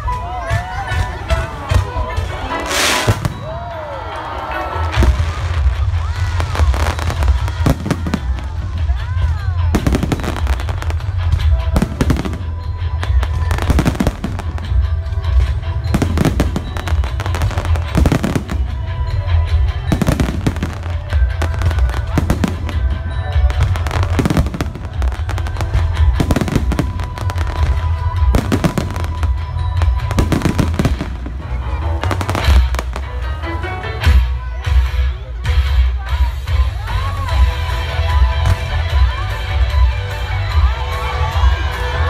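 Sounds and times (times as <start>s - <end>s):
music playing: 0.0s - 42.0s
fireworks bursting: 4.6s - 33.5s.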